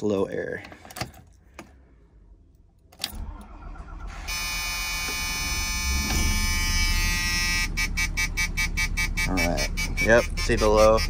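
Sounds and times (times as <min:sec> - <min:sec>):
motorhome engine starting and running: 0:02.9 - 0:11.0
high-pitched warning alarm: 0:03.6 - 0:11.0.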